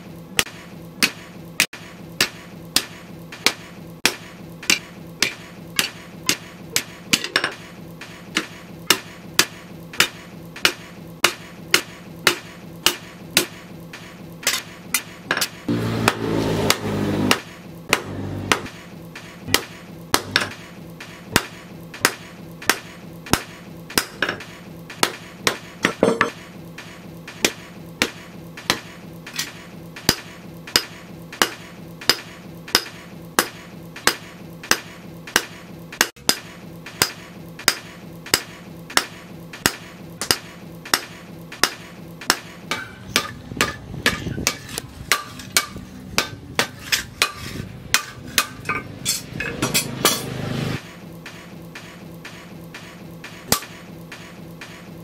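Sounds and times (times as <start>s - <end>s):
hammer clanging on anvil: 23.4s - 26.4s, 36.1s - 50.4s.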